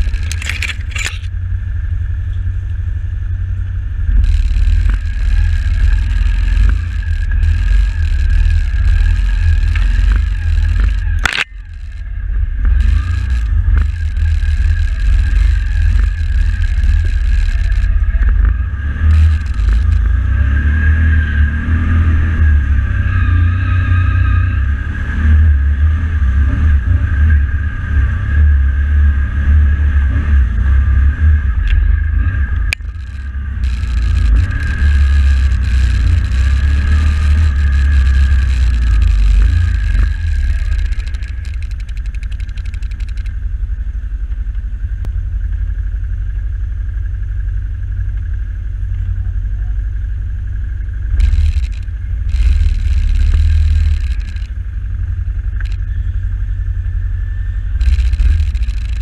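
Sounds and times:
atv engine rumbling: 0.0 - 59.0
high engine whine: 0.0 - 59.0.

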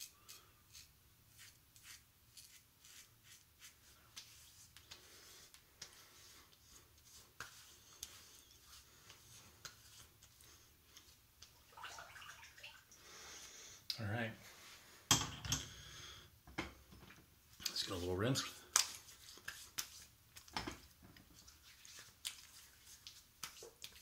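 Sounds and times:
razor scraping stubble: 0.0 - 5.1
hand rubbing skin: 0.7 - 11.6, 17.6 - 24.0.

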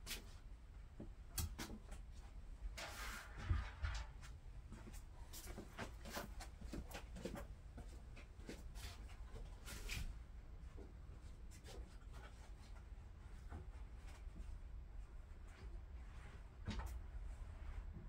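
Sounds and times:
knocks and scrapes: 2.7 - 7.4.

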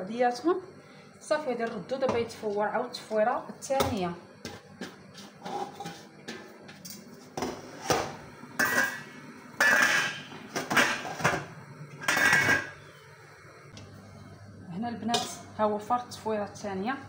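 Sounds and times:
metal pot and bowl clanking: 7.9 - 12.8.

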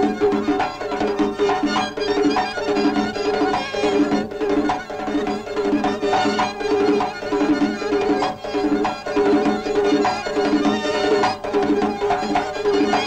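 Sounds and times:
steady drum beat: 0.0 - 13.0
sustained folk dance melody: 0.0 - 13.0.

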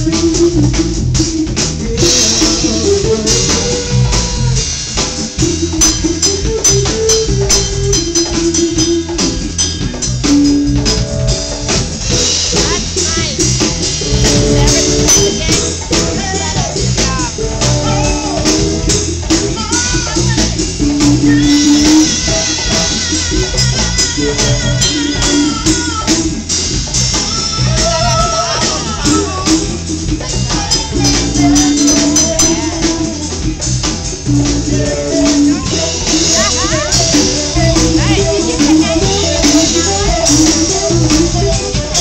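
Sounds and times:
man singing: 0.0 - 9.1, 14.0 - 26.4, 27.1 - 33.6, 34.3 - 41.2
congas: 0.0 - 42.0
funky reggae band playing: 0.0 - 42.0.

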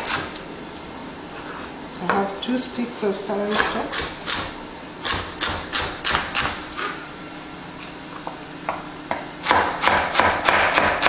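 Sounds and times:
knife chopping on wooden board: 9.1 - 11.0.

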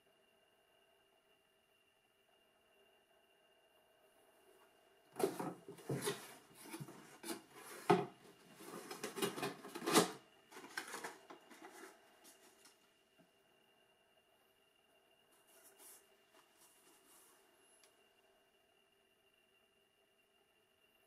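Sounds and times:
shoebox handling rustles: 5.2 - 12.7.

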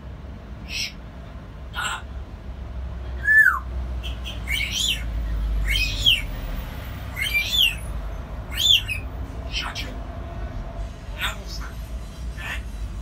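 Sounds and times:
parrot calling: 0.6 - 1.0, 1.7 - 2.2, 3.2 - 10.0, 12.3 - 12.8.

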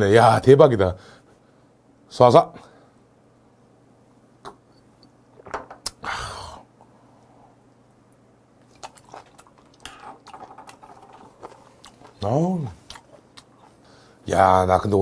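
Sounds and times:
chewing and slurping shellfish: 8.6 - 13.9.

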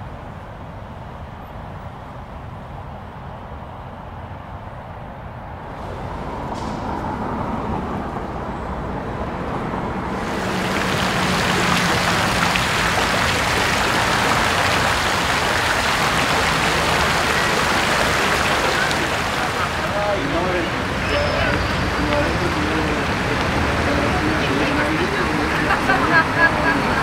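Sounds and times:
low traffic rumble: 0.0 - 27.0
loud even wash of noise: 5.6 - 27.0.

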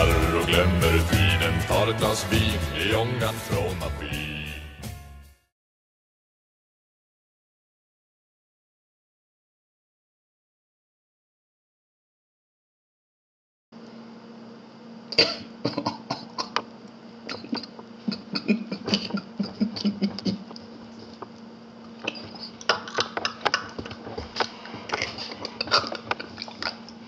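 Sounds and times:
man's stifled laughter: 17.4 - 20.6.

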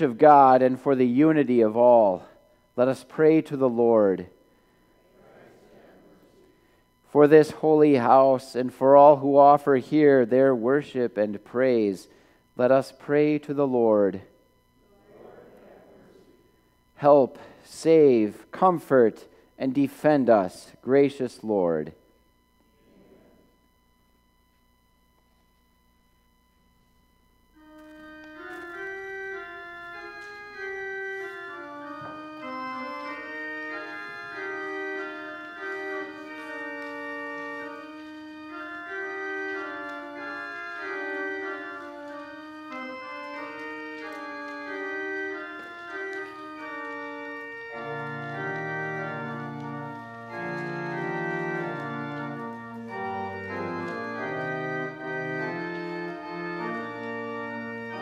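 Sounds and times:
organ bass line: 0.0 - 4.5, 7.0 - 14.5, 27.2 - 58.0
church organ playing chords: 0.0 - 22.8, 23.4 - 58.0.

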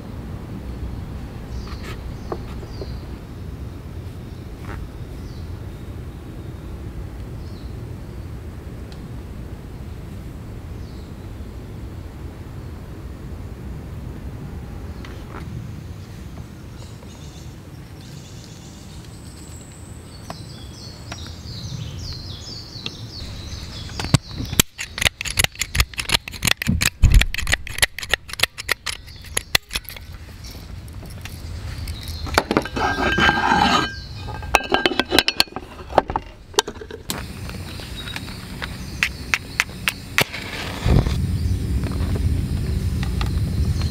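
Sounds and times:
birds chirping faintly: 14.9 - 26.1, 28.3 - 43.9.

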